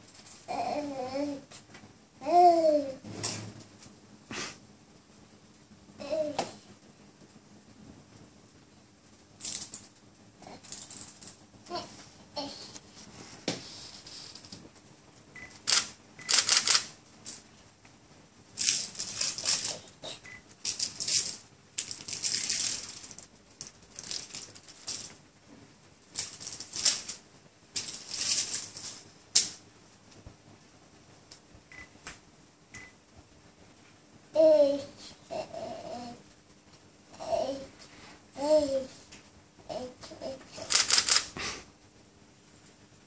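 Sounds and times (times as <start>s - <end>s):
plastic wrapping crinkling: 18.6s - 25.3s, 26.1s - 29.6s.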